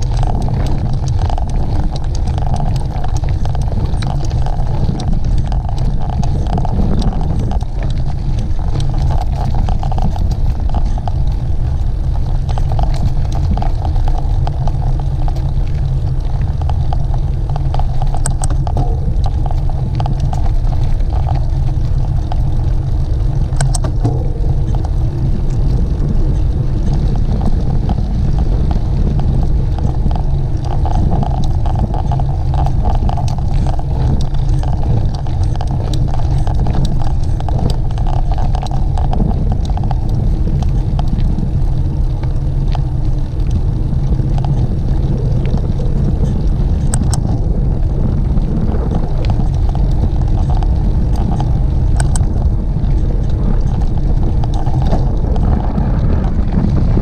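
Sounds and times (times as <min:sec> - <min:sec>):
small clicks and rattles: 0:00.0 - 0:57.0
wind buffeting microphone: 0:00.0 - 0:57.0.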